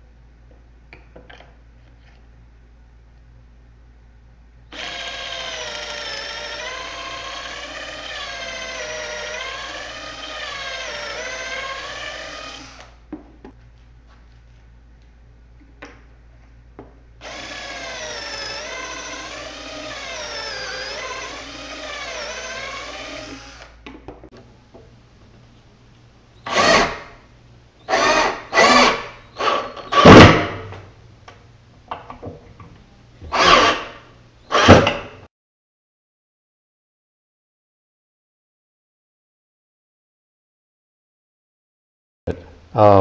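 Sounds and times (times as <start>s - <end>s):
cordless drill boring into wood: 4.7s - 13.0s, 17.2s - 23.8s, 26.4s - 27.1s, 27.8s - 30.6s, 33.3s - 35.0s.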